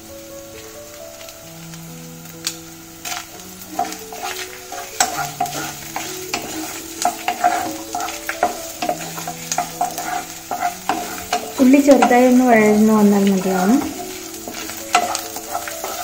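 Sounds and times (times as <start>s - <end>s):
light sizzle of frying: 0.0s - 16.0s
wooden spatula scraping pot: 3.0s - 16.0s.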